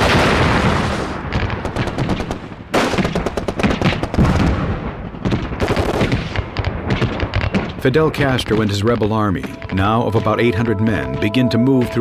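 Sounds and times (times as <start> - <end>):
rifle and machine-gun fire: 0.0 - 7.9.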